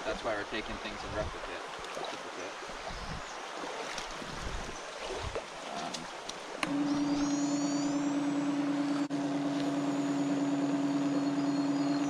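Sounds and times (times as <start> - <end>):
small electric pump humming: 6.5 - 12.0.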